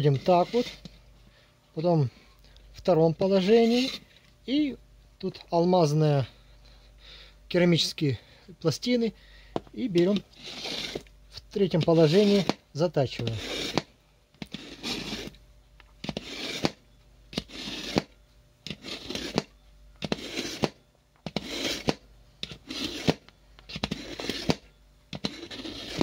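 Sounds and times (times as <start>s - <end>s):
blade scraping through knife sharpener: 0.0s - 0.9s, 3.2s - 4.1s, 10.0s - 11.1s, 11.7s - 12.6s, 13.2s - 15.4s, 16.0s - 18.1s, 18.7s - 26.0s.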